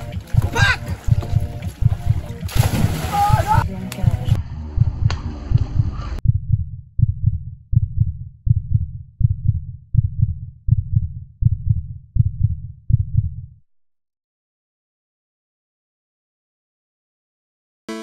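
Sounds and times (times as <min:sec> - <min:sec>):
muffled thumping beat: 0:00.0 - 0:13.5.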